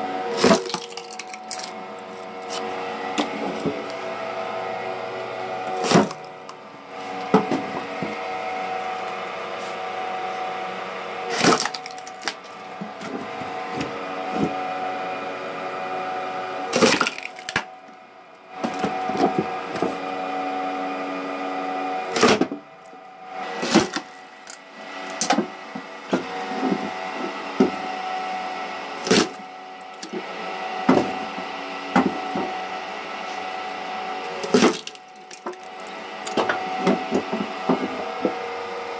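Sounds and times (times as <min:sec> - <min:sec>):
log splitter motor hum: 0:00.0 - 0:38.9
wood splitting with sharp crack: 0:00.3 - 0:01.8, 0:05.6 - 0:06.6, 0:11.3 - 0:12.6, 0:16.7 - 0:17.7, 0:23.6 - 0:26.9, 0:29.0 - 0:30.2, 0:34.3 - 0:37.2.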